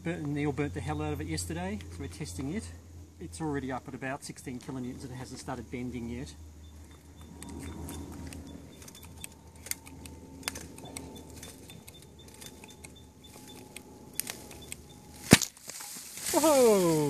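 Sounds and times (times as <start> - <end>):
sharp metallic clicks and ticks: 6.6 - 15.4.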